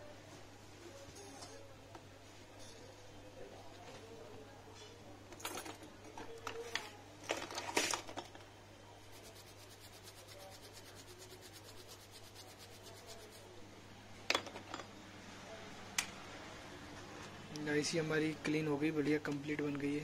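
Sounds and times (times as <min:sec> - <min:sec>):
small brush scrubbing: 0:09.0 - 0:13.6.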